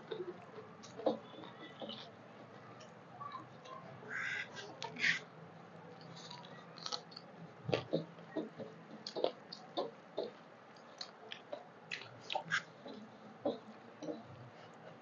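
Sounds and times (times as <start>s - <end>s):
chewing clicks: 6.0s - 8.0s, 8.9s - 13.0s.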